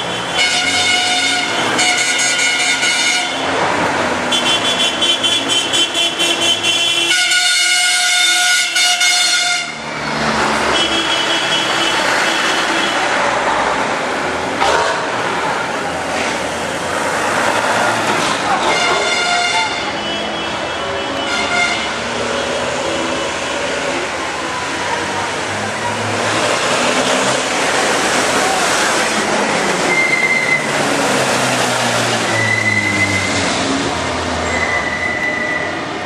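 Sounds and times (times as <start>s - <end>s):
truck horns honking: 0.0s - 13.3s, 16.6s - 23.5s, 24.4s - 36.0s
truck engines driving past: 8.1s - 36.0s.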